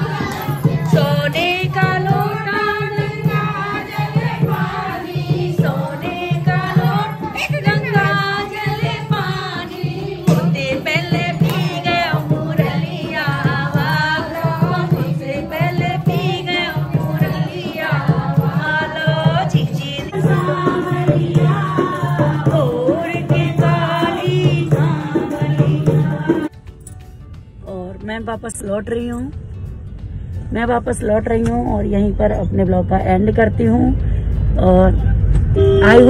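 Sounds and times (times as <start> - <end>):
folk song singing: 0.0 - 26.5
steady drum beat: 0.0 - 26.6.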